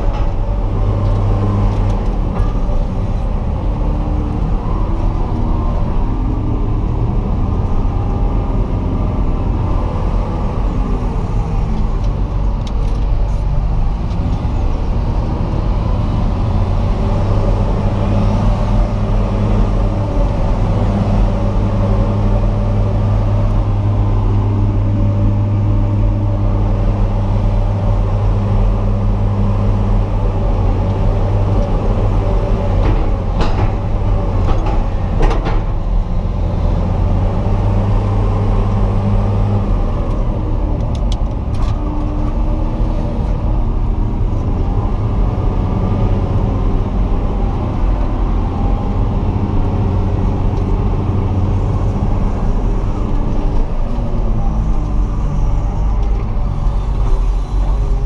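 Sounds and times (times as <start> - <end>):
diesel engine running under load: 0.0 - 58.0.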